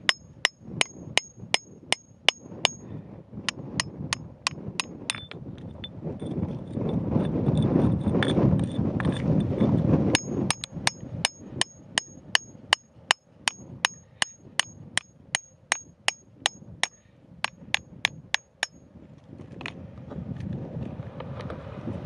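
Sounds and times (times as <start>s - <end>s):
metallic hammer taps: 0.0s - 2.8s, 3.8s - 5.4s, 10.2s - 12.9s, 13.5s - 18.8s.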